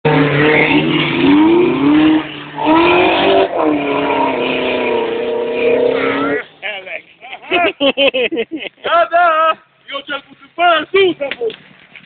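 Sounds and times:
car engine revving hard: 0:00.1 - 0:06.4.

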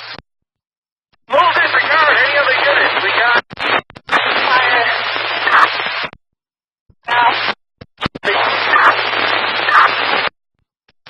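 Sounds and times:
radio static hiss: 0:00.0 - 0:00.2, 0:01.3 - 0:06.1, 0:07.1 - 0:10.3
garbled radio voices: 0:01.3 - 0:06.1, 0:07.0 - 0:10.3.

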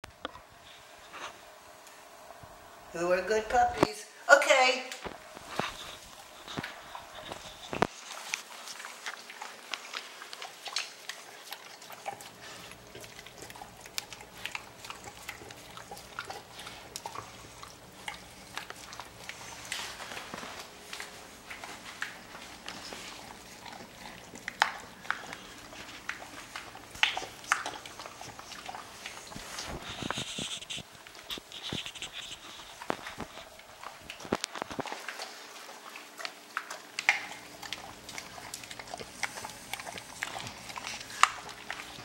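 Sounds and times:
dogs crunching and chewing food: 0:00.0 - 0:04.0, 0:04.6 - 0:42.0
teeth and bowls clicking: 0:22.0 - 0:29.4, 0:36.2 - 0:42.0.

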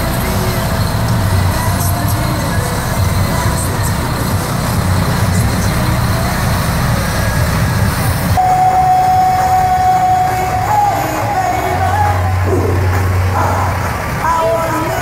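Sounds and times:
diesel truck engine rumbling: 0:00.0 - 0:15.0
long held musical note: 0:08.4 - 0:13.8.

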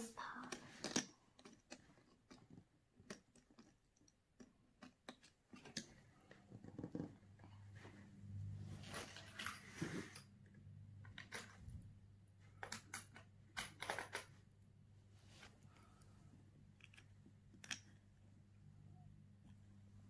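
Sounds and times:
low room hum: 0:00.0 - 0:20.0
handling clicks and rustles: 0:00.5 - 0:08.0, 0:08.7 - 0:10.3.

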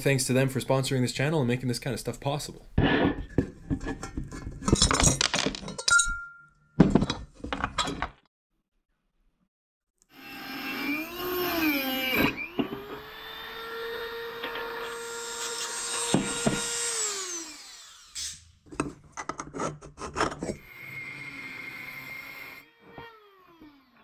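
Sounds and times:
rotary tool motor whine: 0:10.1 - 0:18.4, 0:20.6 - 0:24.0.

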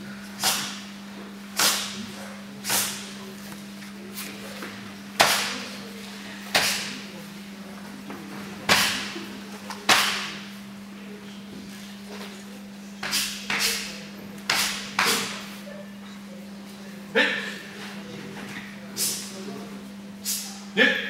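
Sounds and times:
hand strikes slapping a body: 0:01.6 - 0:02.0, 0:05.2 - 0:05.5, 0:06.5 - 0:06.9, 0:08.7 - 0:09.1, 0:09.8 - 0:10.4.

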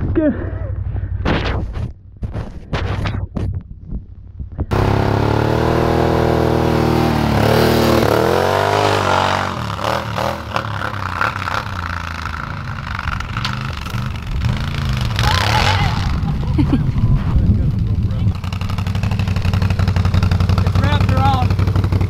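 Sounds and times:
atv engine revving: 0:04.7 - 0:22.0.

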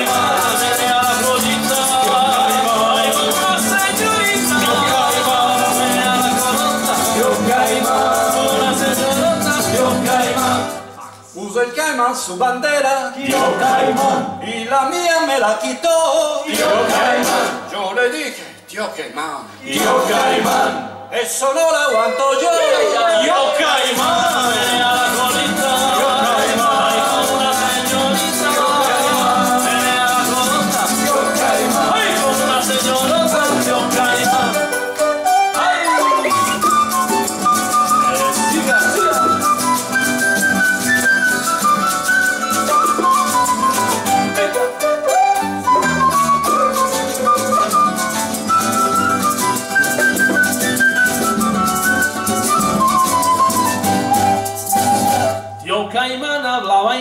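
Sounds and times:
rattling hand percussion: 0:00.0 - 0:10.9, 0:23.8 - 0:55.7
latin band playing: 0:00.0 - 0:11.3, 0:13.2 - 0:14.5, 0:16.4 - 0:17.7, 0:19.5 - 0:21.1, 0:22.0 - 0:56.0
maracas shaking: 0:00.0 - 0:11.3, 0:23.6 - 0:55.7
strummed acoustic guitars: 0:00.0 - 0:11.4, 0:13.2 - 0:15.0, 0:16.1 - 0:17.8, 0:19.6 - 0:21.2, 0:22.1 - 0:56.0
wooden flute melody: 0:24.0 - 0:55.8
hand drums: 0:36.0 - 0:55.7.

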